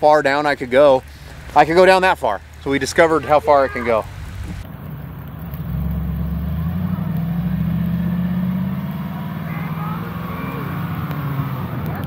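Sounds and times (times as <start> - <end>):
engine running under load: 4.0 - 12.0.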